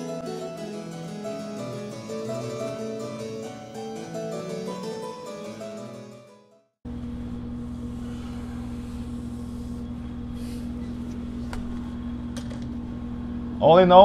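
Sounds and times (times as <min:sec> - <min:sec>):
machine motor humming: 0:06.9 - 0:13.6.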